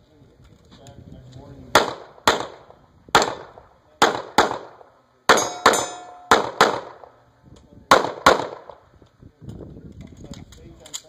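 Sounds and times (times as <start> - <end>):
pistol shots: 1.7 - 7.2, 7.9 - 8.8
steel target ringing: 5.3 - 6.7.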